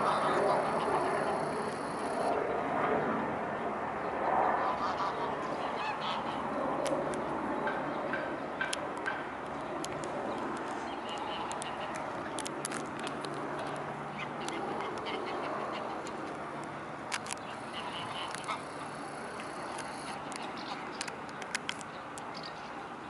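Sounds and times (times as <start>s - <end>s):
steady rushing noise: 0.0s - 22.4s
waterfowl calling: 17.5s - 19.0s.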